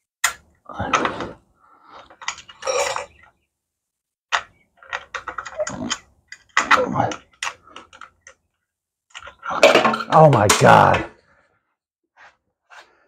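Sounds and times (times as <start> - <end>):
tools and small parts clattering: 2.0 - 3.3, 4.3 - 11.0.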